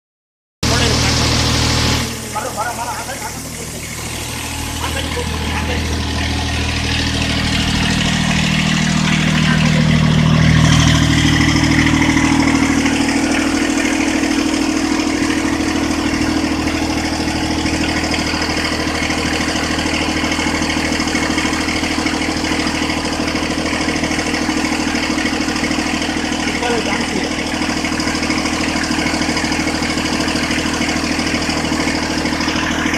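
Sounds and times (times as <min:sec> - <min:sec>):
engine running steadily: 0:00.6 - 0:32.9.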